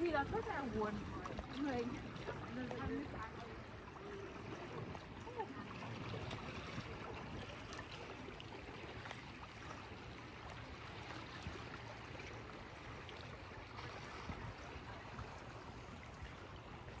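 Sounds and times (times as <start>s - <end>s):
small waves lapping on rocks: 0.0s - 17.0s.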